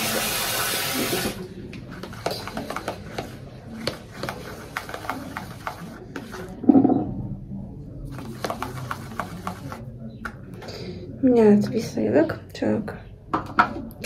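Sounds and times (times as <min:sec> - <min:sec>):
running water tap: 0:00.0 - 0:01.5
brush scraping plastic bowl: 0:01.0 - 0:06.6, 0:08.1 - 0:09.9.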